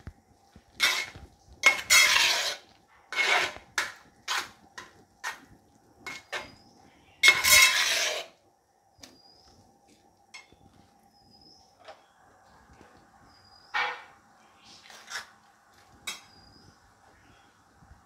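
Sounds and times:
metal spoon scraping a pot: 0.8s - 6.6s, 7.2s - 8.4s, 14.7s - 15.4s.

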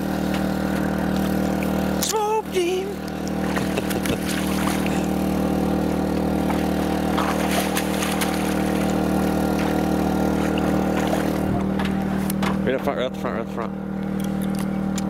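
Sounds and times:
boat engine running: 0.0s - 15.0s
water splashing: 2.6s - 5.6s, 6.2s - 11.6s.

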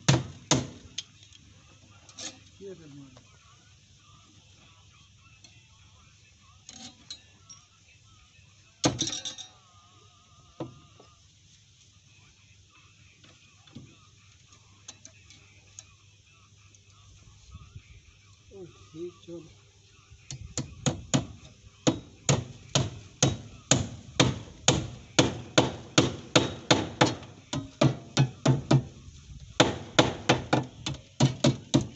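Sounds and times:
hand tool clinking on metal: 6.6s - 7.8s, 8.9s - 9.6s
hammer striking plywood: 20.6s - 28.9s.

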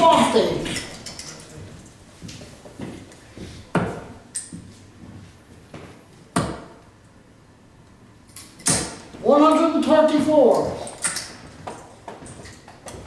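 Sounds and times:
darts thudding into dartboard: 6.4s - 6.8s.

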